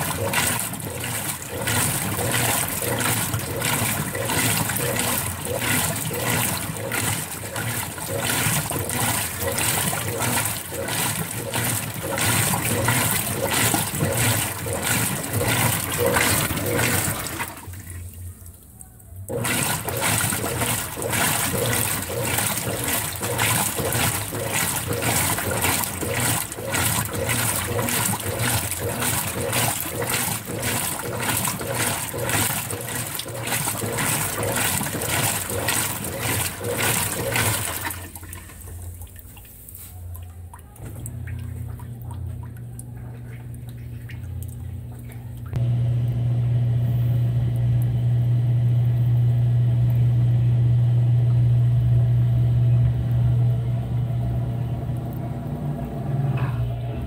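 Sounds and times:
washing machine sloshing water: 0.0s - 57.0s.

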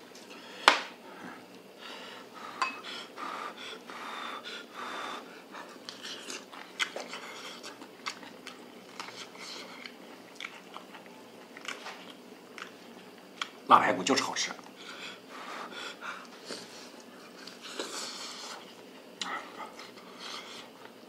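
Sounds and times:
person chewing and sucking meat: 5.6s - 13.6s.

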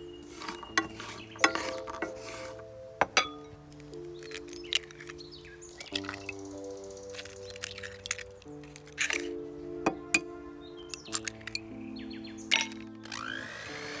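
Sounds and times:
light background music: 0.0s - 14.0s
eggs breaking into glass bowl: 3.1s - 10.3s, 10.9s - 11.6s, 12.5s - 13.2s
walnuts rattling in frying pan: 5.8s - 9.4s.

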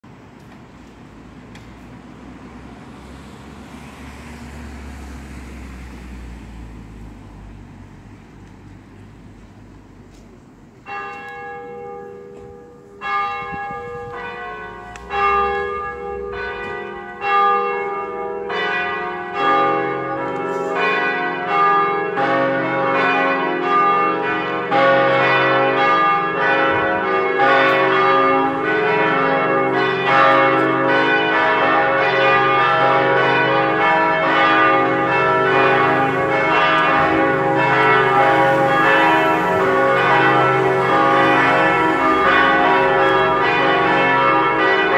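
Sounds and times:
church bells ringing: 10.8s - 44.9s.

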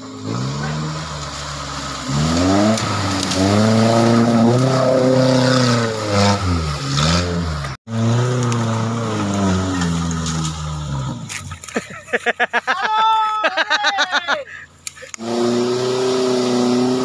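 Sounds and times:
off-road vehicle engine revving hard: 0.0s - 11.5s, 15.1s - 17.0s.

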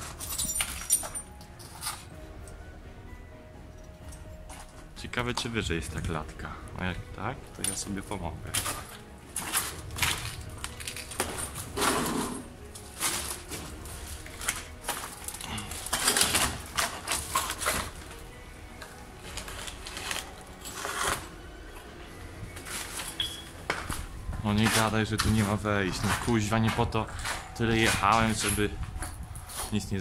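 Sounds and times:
footsteps crunching on rubble: 7.7s - 18.2s, 22.5s - 30.0s.

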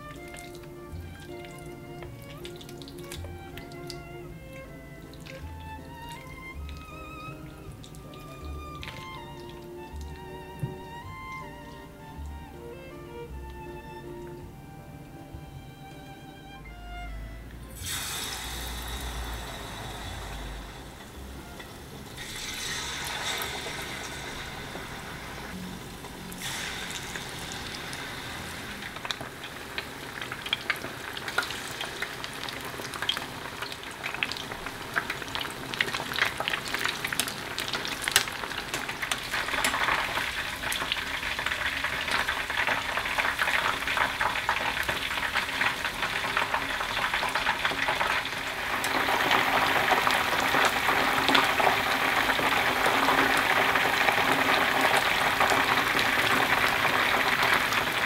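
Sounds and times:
chicken deep-frying in oil: 0.0s - 14.6s, 17.7s - 58.0s.

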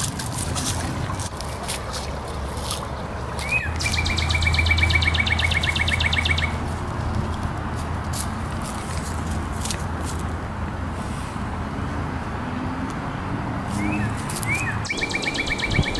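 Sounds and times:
dry leaves rustling: 0.0s - 4.3s, 6.0s - 10.4s
bird trilling: 3.4s - 6.6s, 14.0s - 15.9s.

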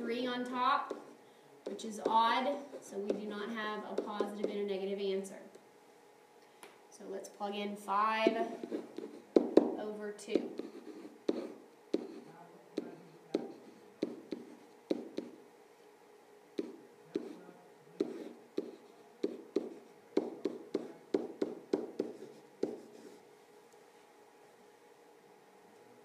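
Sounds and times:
stylus tapping on glass screen: 18.0s - 22.8s.

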